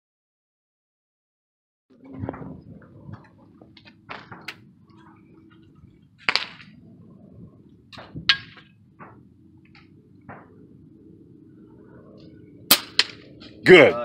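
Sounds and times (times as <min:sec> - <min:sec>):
air rifle shots: 0:12.7 - 0:13.4.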